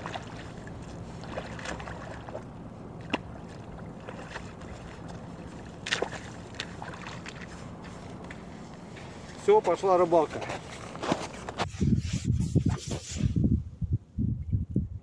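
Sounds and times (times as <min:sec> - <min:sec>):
knocks and splashes: 0:00.0 - 0:08.5
boots sloshing in water: 0:00.0 - 0:11.6
steady low hum: 0:00.0 - 0:11.7.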